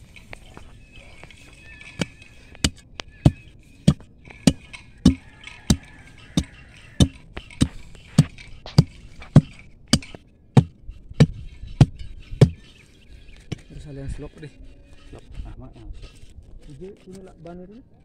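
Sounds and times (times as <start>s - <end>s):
steel bar striking hard soil: 1.9s - 12.7s.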